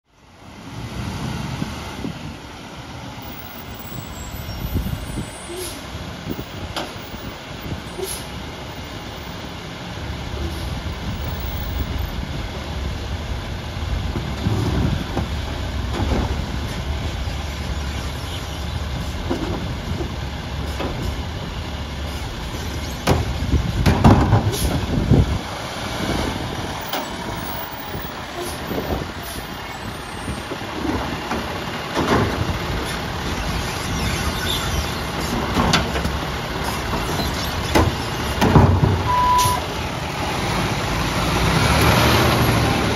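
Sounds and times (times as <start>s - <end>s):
diesel truck engine rumbling: 0.1s - 42.9s
air brakes hissing: 3.8s - 5.9s, 7.9s - 8.4s, 24.5s - 24.8s, 27.8s - 30.4s, 39.0s - 39.7s.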